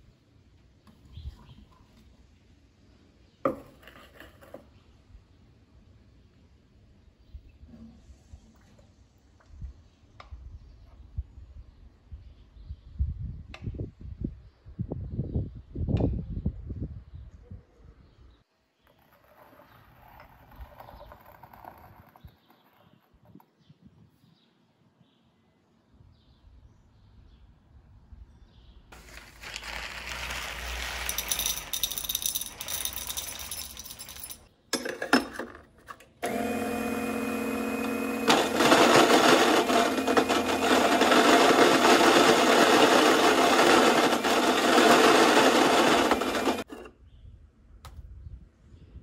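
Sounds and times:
coffee grinder grinding beans: 29.0s - 34.4s, 36.2s - 46.9s.

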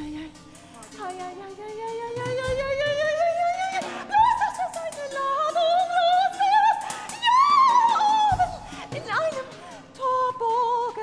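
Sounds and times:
soprano voice singing: 0.0s - 11.0s.

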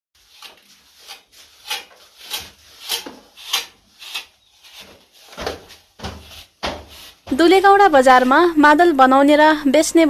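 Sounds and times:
metal straightedge scraping plaster: 0.2s - 5.4s, 6.1s - 7.3s.

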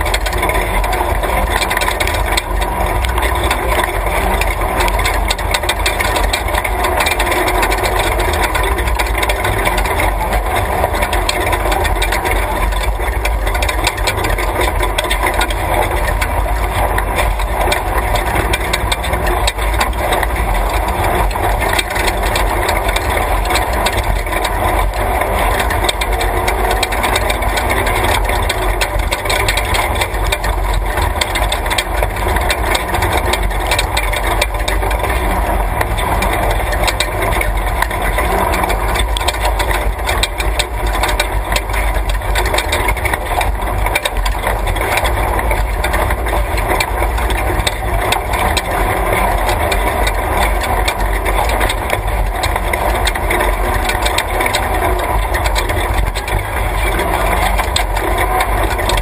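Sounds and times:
chassis and road noise: 0.0s - 59.0s
truck engine under load: 0.0s - 59.0s.

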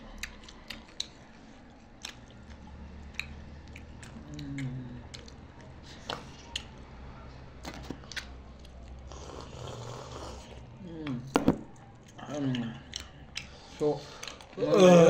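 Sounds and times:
low steady hum: 0.0s - 15.0s
people chewing and eating: 0.0s - 15.0s
wet smacks and small clicks: 0.2s - 6.8s.

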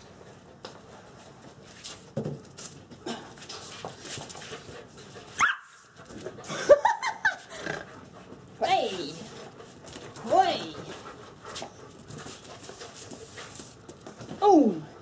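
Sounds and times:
puppy yelp: 5.4s - 5.8s
puppy yips and play barks: 5.4s - 5.8s
puppy scuffling and clicks: 9.2s - 14.4s.

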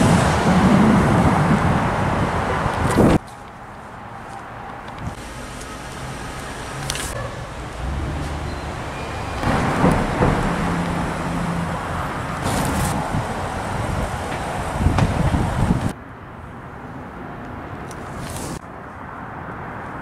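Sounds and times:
engine humming: 0.0s - 15.9s
outdoor background noise: 0.0s - 20.0s
vehicles rumbling by: 0.0s - 20.0s.

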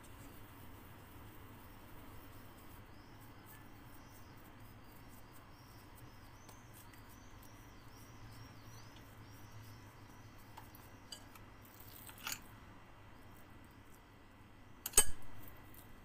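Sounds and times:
low steady hum: 0.0s - 16.0s
faint high chirping: 0.2s - 12.4s.

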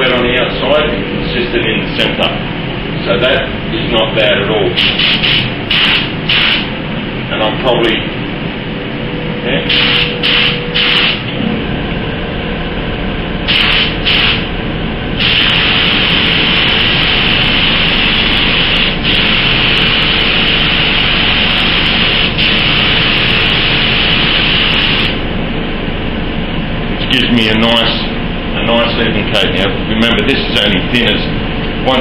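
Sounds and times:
constant low hum: 0.0s - 32.0s
spray gun hissing: 4.8s - 6.7s, 9.7s - 11.3s, 13.5s - 14.5s, 15.2s - 25.2s.

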